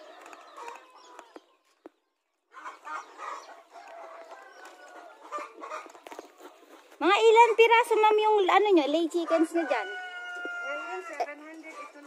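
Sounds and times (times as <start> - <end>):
chickens clucking: 0.0 - 12.0
rooster crowing: 9.3 - 11.3.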